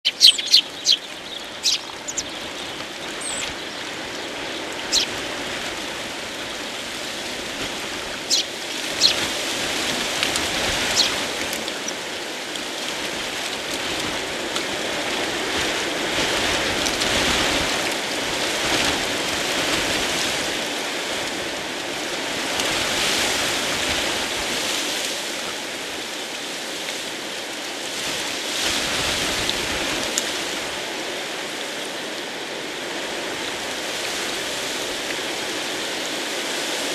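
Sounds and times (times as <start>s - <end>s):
small birds chirping: 0.0s - 6.8s, 8.1s - 9.4s, 10.4s - 12.2s
wind: 0.0s - 36.9s.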